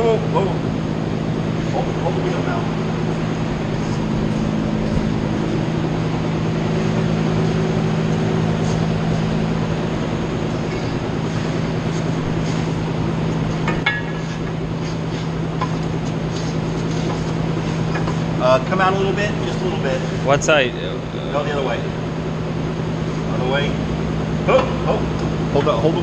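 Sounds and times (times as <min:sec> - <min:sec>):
machinery low hum: 0:00.0 - 0:26.0
broad rushing noise: 0:01.5 - 0:22.0.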